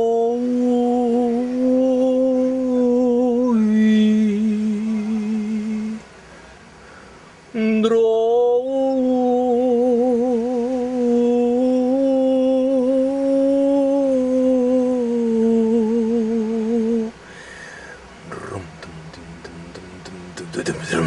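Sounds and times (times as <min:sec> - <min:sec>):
person humming a long note: 0:00.0 - 0:06.0, 0:07.6 - 0:17.2.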